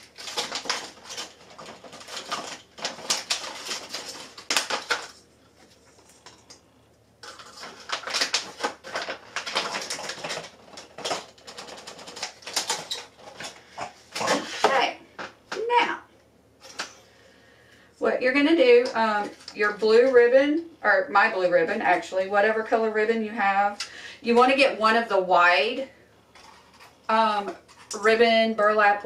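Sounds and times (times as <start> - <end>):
ornaments rattling in plastic tube: 0.0 - 5.2, 7.2 - 13.7
crinkly plastic handling: 0.0 - 15.8, 18.8 - 20.2.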